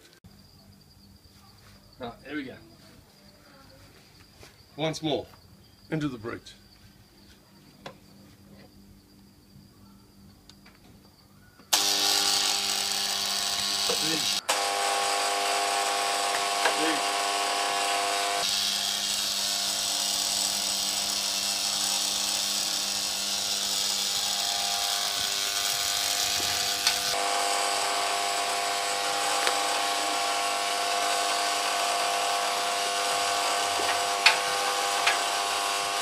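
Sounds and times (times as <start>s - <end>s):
hot blades hissing in oil: 11.8s - 36.0s.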